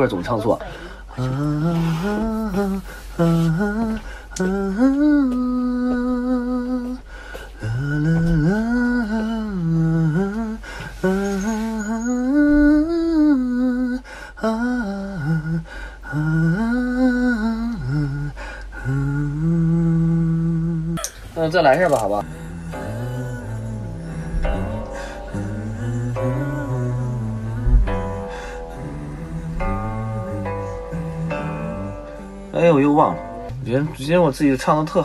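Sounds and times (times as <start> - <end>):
breaths: 0.6 - 1.1, 7.1 - 7.6, 10.6 - 11.0, 14.0 - 14.4, 15.6 - 16.1, 18.4 - 18.8, 28.2 - 28.7
man humming: 0.6 - 21.2, 22.2 - 33.6.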